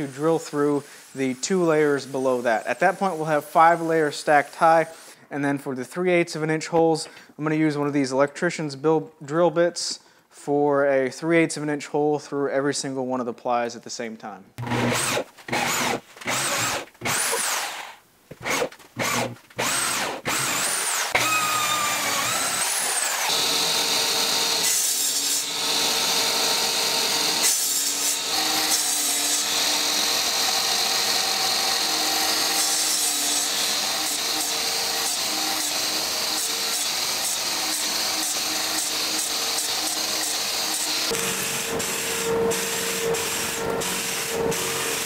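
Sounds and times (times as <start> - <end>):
drill boring through plywood: 14.6 - 45.0
miter saw cutting plywood: 14.6 - 45.0.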